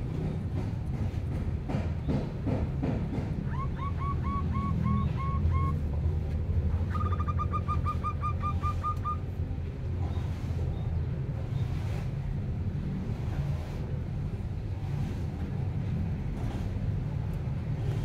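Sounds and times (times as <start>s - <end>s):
bird chirping: 6.9s - 9.2s.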